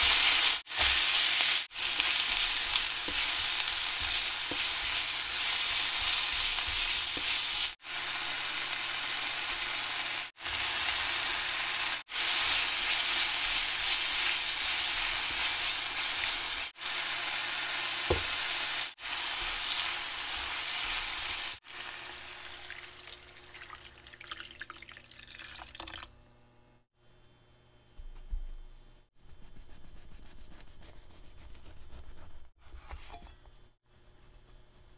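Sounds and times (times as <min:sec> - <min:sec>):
spatula stirring in a pan: 0:00.0 - 0:08.4, 0:12.1 - 0:21.6
food sizzling in a pan: 0:00.0 - 0:23.7
water poured into a pan: 0:22.2 - 0:26.1.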